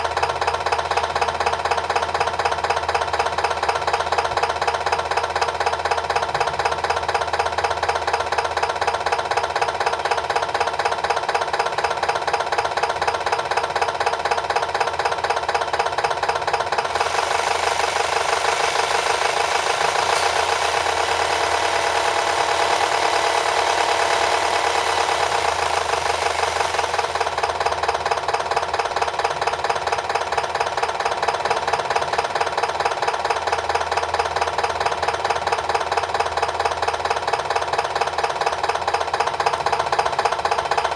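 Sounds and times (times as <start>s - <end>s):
simulated diesel engine idling: 0.0s - 40.9s
simulated engine revving: 16.9s - 27.6s.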